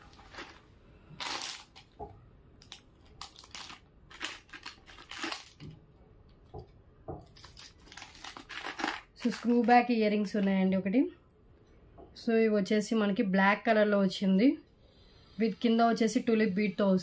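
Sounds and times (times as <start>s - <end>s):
plastic wrapping crinkling: 0.0s - 5.8s, 7.2s - 10.5s.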